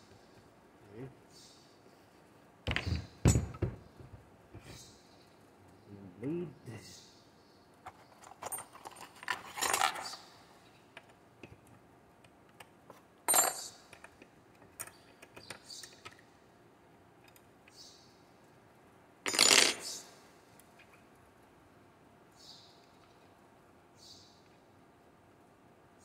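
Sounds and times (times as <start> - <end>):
metal tools clinking: 7.9 - 10.2, 13.3 - 14.1, 19.3 - 20.0.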